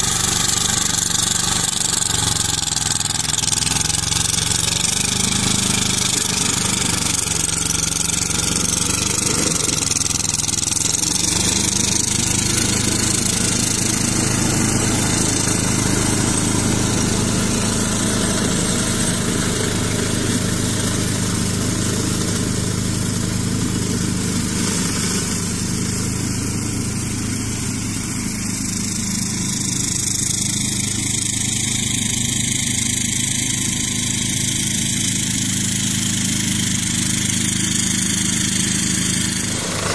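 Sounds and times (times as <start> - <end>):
tractor diesel engine running: 0.0 - 39.9
brush cutter rushing hiss: 37.6 - 39.9.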